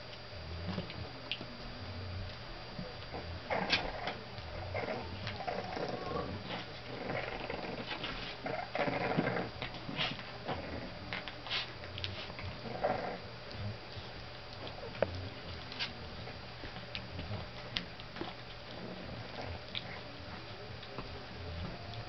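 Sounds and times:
puppies growling and yelping: 3.0 - 13.8, 14.6 - 20.1
paws scuffling on floor: 7.8 - 8.6, 9.2 - 12.7, 13.5 - 22.0.

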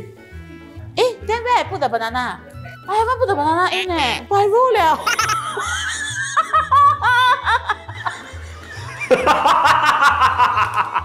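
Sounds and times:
background music with steady beat: 0.0 - 11.0
woman laughing: 4.9 - 11.0.

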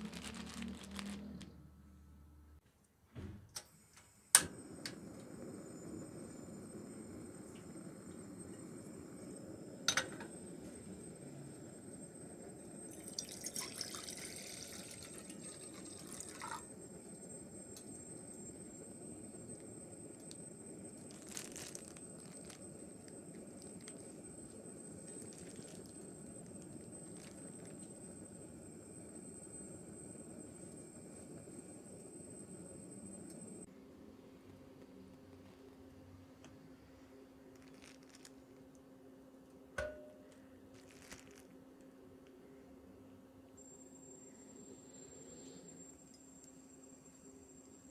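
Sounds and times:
bag rustling: 0.0 - 1.4, 21.0 - 22.9, 25.1 - 26.0, 27.0 - 27.7, 37.6 - 38.3, 40.8 - 41.5
faint steady hum: 0.0 - 47.9
water pouring into a pot: 12.8 - 17.3, 21.0 - 28.4.

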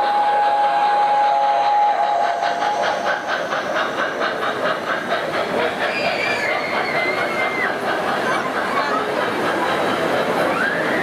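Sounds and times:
steam whistle: 0.0 - 2.7
clicking of train wheels: 0.0 - 11.0.

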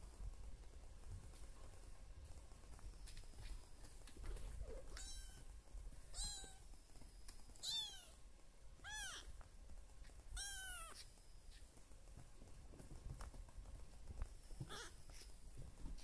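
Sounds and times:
kitten mewing: 8.8 - 9.3, 10.4 - 11.1.

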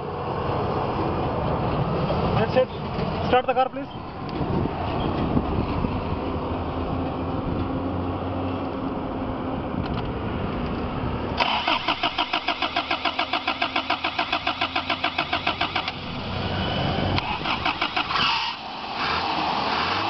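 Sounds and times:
starter motor cranking engine: 11.4 - 18.7.

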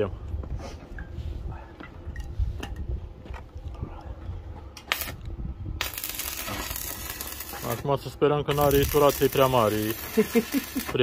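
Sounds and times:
welding arc crackling: 4.9 - 5.2, 5.8 - 11.0.

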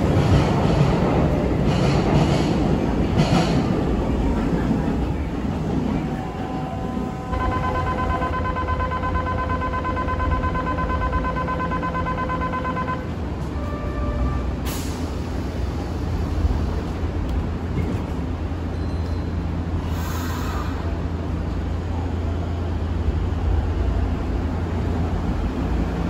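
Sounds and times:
steady buzzer tone: 7.2 - 13.1
train doors closing with air hiss: 13.4 - 21.3.

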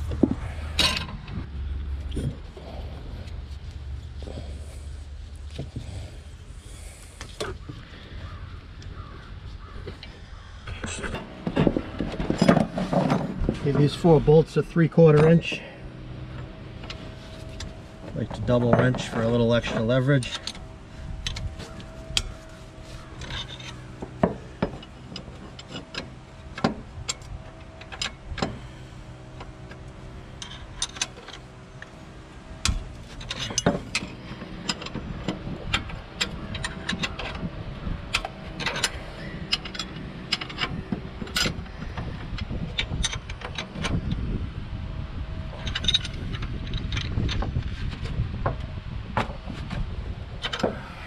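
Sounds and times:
steady hum: 0.0 - 51.0
wrenches clicking on bolts: 16.9 - 31.9, 32.6 - 37.5, 38.1 - 44.0.

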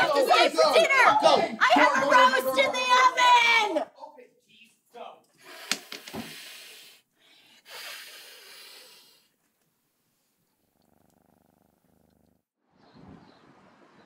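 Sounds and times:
woman breathy hissing exhale: 5.4 - 9.3.

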